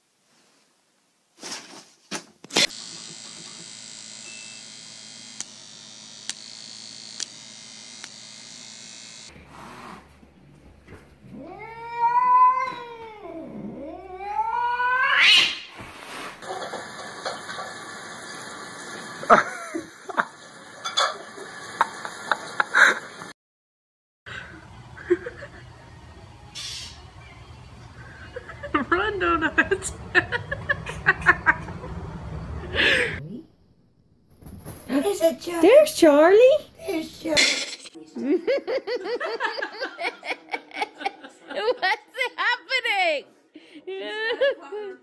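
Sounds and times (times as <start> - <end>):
cat yowling: 11.3 - 15.6.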